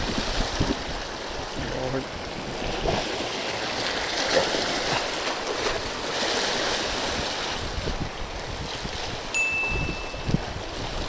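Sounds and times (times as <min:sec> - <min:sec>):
waves splashing on rocks: 0:00.0 - 0:11.0.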